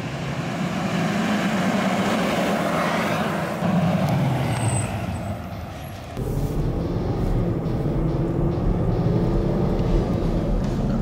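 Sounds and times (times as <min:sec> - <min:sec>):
tyre and road noise: 0:00.0 - 0:11.0
diesel truck engine running: 0:03.4 - 0:11.0.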